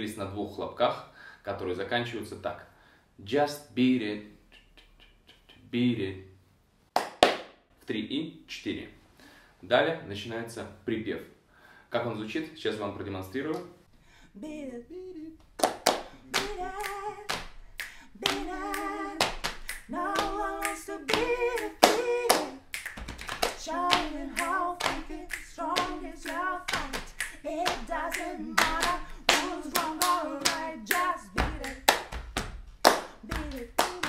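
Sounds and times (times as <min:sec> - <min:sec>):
hand claps: 0:06.9 - 0:07.6, 0:15.6 - 0:34.0
slaps on thighs and chest: 0:07.0 - 0:07.6, 0:18.2 - 0:34.0
man singing: 0:16.2 - 0:17.4, 0:18.1 - 0:22.8, 0:23.6 - 0:32.1.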